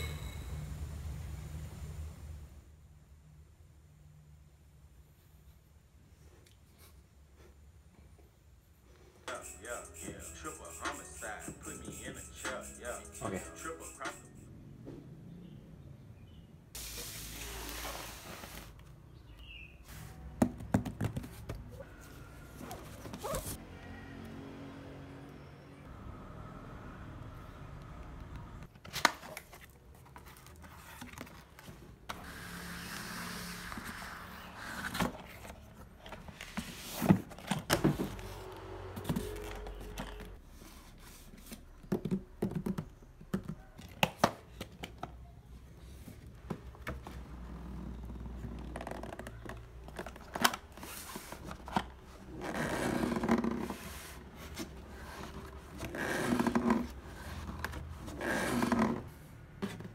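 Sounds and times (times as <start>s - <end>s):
cardboard knocking and scraping: 20.4s - 21.8s
cardboard box rubbing and scraping: 52.4s - 59.9s.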